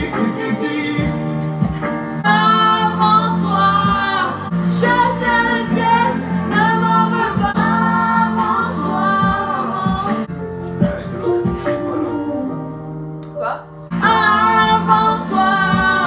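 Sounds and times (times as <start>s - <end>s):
steady bass line: 0.0s - 13.2s, 13.9s - 16.0s
woman singing: 2.2s - 10.3s, 14.0s - 16.0s.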